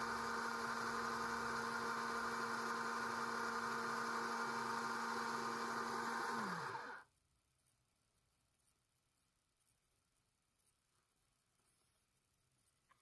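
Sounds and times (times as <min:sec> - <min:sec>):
electric pump humming: 0:00.0 - 0:07.0.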